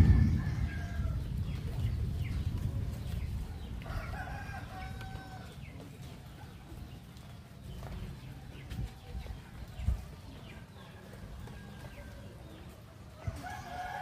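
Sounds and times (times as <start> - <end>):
rooster crowing: 0.0 - 1.2, 3.8 - 5.5, 13.2 - 14.0
low rumble: 0.0 - 3.9.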